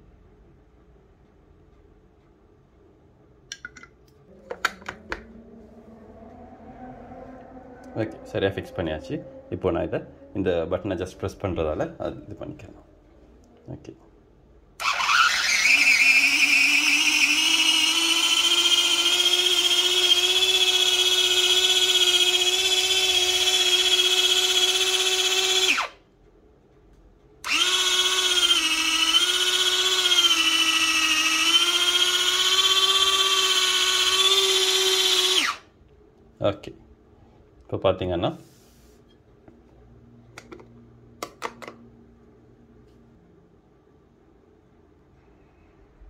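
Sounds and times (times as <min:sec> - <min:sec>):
electric chopper motor whining: 0:14.8 - 0:26.0, 0:27.4 - 0:35.6.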